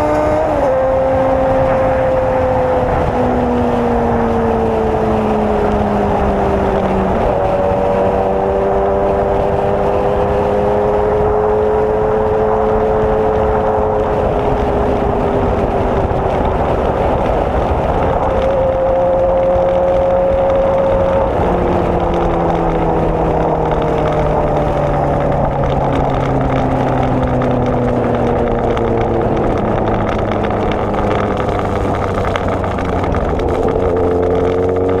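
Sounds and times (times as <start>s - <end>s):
motorcycle engine running: 0.0s - 35.0s
wind noise: 0.0s - 35.0s.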